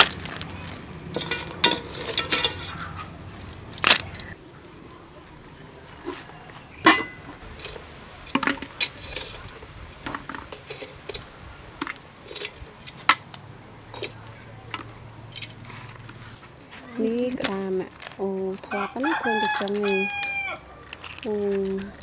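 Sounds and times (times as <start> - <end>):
metal pot and tongs clinking: 0.0 - 3.0, 6.8 - 11.2, 11.8 - 13.3, 13.9 - 16.0.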